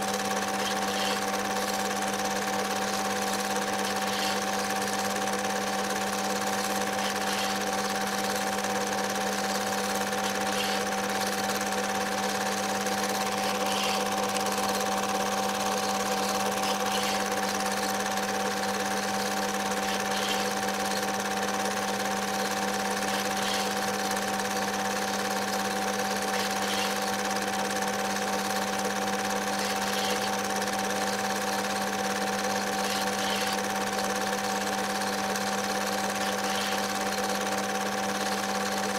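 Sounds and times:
steady hum: 0:00.0 - 0:21.3, 0:26.2 - 0:27.5
film projector whirring: 0:00.0 - 0:38.9.

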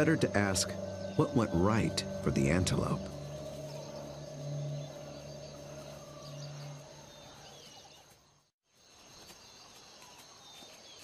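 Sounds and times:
low held music tone: 0:00.0 - 0:07.6
high insect drone: 0:00.0 - 0:08.0
bird chirps: 0:00.0 - 0:08.5.

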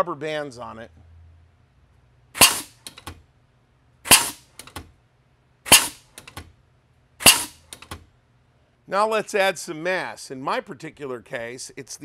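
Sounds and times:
compressed air blasts: 0:02.4 - 0:02.9, 0:04.0 - 0:04.6, 0:05.6 - 0:06.2, 0:07.2 - 0:07.8.

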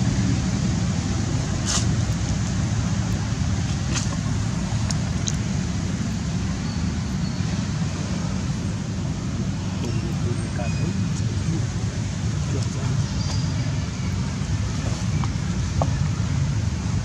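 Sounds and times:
low outdoor rumble: 0:00.0 - 0:17.0
hiss: 0:00.3 - 0:03.3.

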